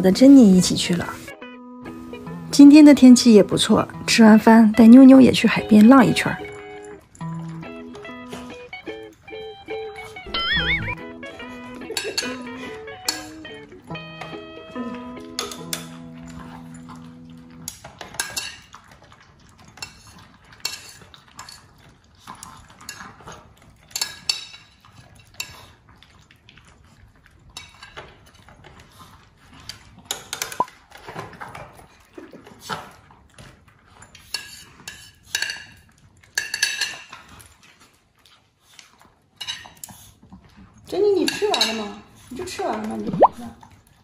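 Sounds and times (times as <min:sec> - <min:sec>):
dogs licking and chewing: 0:00.1 - 0:44.0
dog bowls clinking and scraping: 0:15.2 - 0:25.7, 0:27.5 - 0:38.0, 0:38.8 - 0:43.0.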